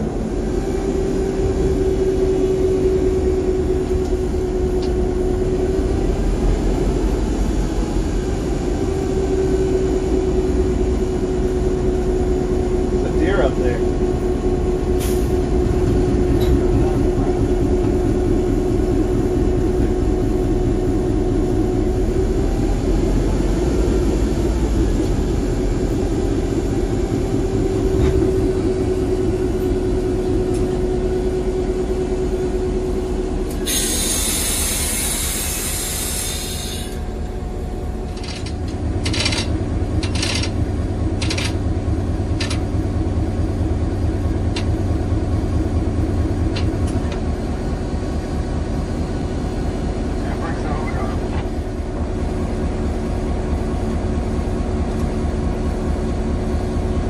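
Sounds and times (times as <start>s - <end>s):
diesel locomotive engine drone: 0.0s - 57.0s
loud air hiss: 33.6s - 37.0s
sharp clanks: 38.1s - 40.6s.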